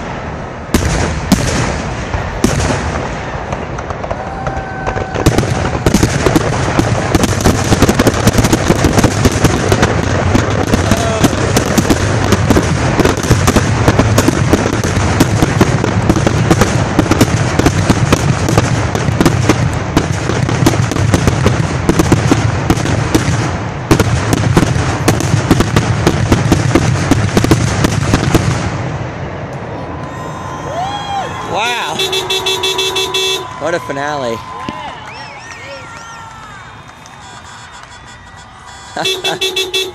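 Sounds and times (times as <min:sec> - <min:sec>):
fireworks bursting and crackling: 0:00.0 - 0:39.9.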